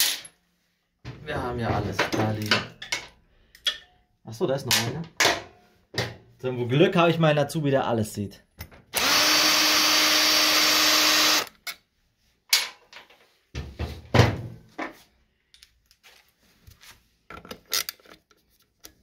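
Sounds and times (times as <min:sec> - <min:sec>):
impact wrench running: 0:08.9 - 0:11.5.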